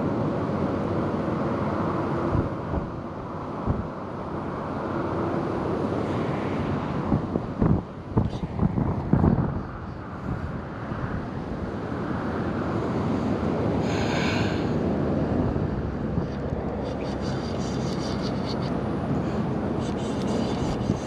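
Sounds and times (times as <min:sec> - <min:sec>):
wind buffeting microphone: 0:02.2 - 0:04.0, 0:06.2 - 0:13.8, 0:14.8 - 0:21.0.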